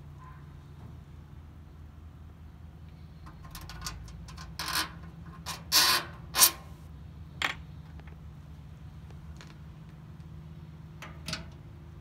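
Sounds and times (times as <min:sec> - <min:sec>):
metal parts scraping: 0:03.3 - 0:06.8.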